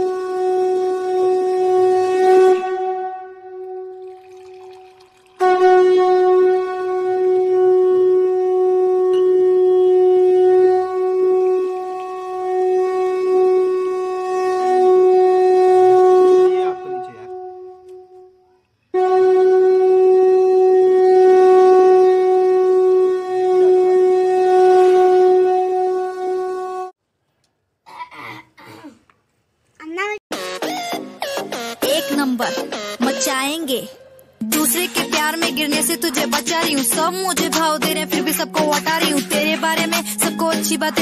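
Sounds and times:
horn-like wind instrument note: 0.0s - 4.0s, 5.4s - 26.9s.

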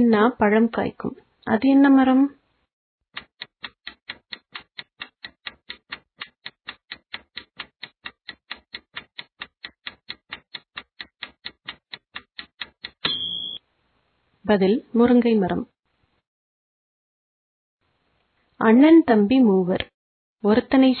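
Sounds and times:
clock ticking: 3.2s - 13.6s.

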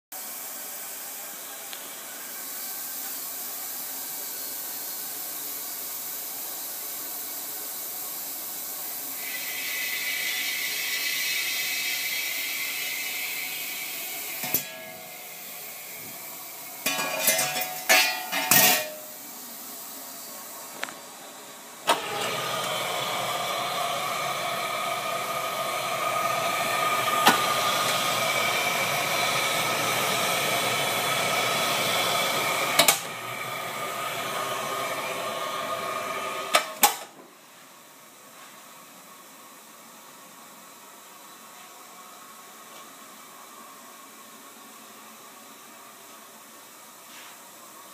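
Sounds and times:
steamer hissing: 0.2s - 37.1s.

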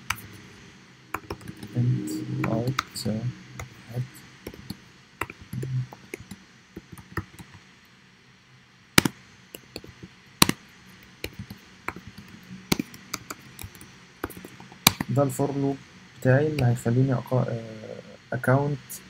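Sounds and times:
computer keyboard typing: 1.2s - 1.8s, 4.4s - 7.6s, 9.0s - 15.1s.

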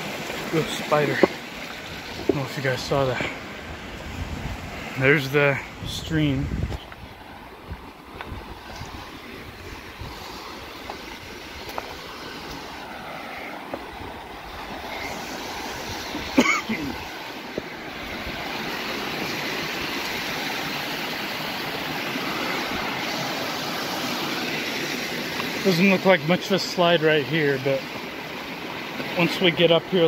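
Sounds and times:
stream rushing: 0.0s - 30.0s
footsteps on loose rock: 1.0s - 2.5s, 10.8s - 12.6s.

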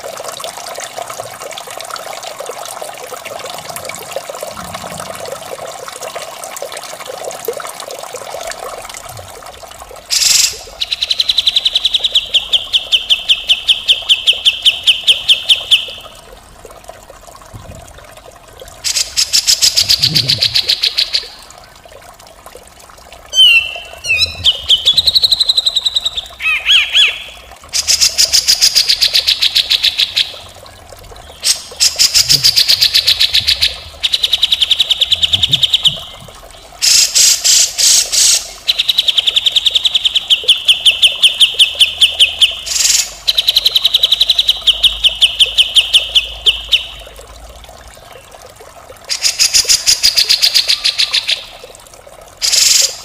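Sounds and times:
bulbul calling in rattling notes: 23.3s - 29.2s.

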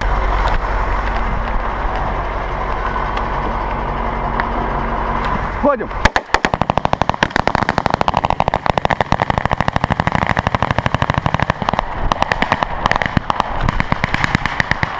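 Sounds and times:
automatic gunfire: 6.0s - 14.9s.

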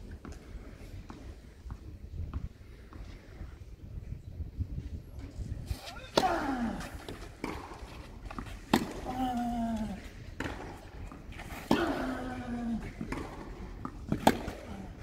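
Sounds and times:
racket hitting tennis ball: 5.8s - 9.4s, 10.0s - 15.0s.

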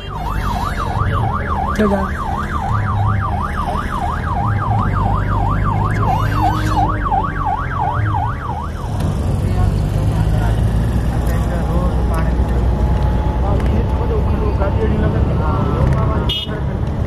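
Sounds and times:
electronic siren yelping: 0.0s - 9.0s
traffic rumble: 0.0s - 17.0s.

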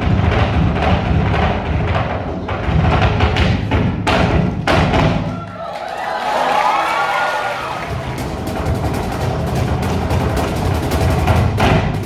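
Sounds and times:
heeled shoes drumming on stage floor: 0.0s - 5.3s, 7.9s - 12.0s.

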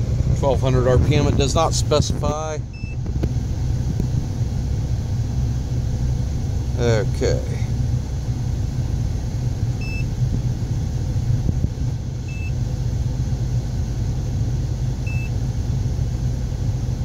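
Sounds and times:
car engine running: 0.0s - 17.0s
short electronic beeps: 2.7s - 3.0s, 9.8s - 10.1s.

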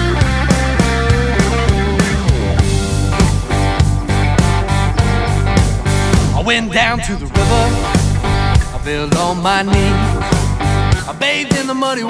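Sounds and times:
guitar: 0.0s - 12.0s
drum beat: 7.3s - 11.2s.

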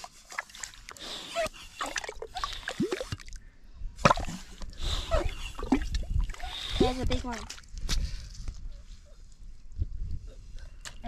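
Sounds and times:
mud and water splattering: 0.0s - 3.4s
mud sucking squelches: 0.0s - 3.4s, 4.0s - 8.2s.

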